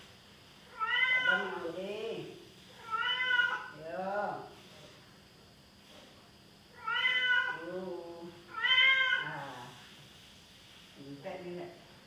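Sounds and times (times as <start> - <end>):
cat meowing: 0.7 - 1.6, 2.8 - 3.7, 6.8 - 7.6, 8.5 - 9.4.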